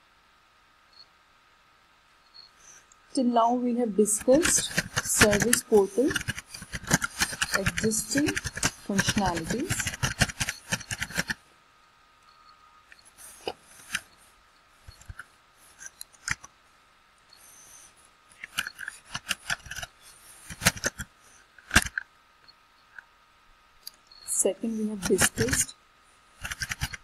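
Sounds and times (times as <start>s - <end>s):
computer keyboard typing: 4.1s - 11.4s, 18.4s - 19.9s, 24.8s - 25.7s, 26.4s - 27.0s.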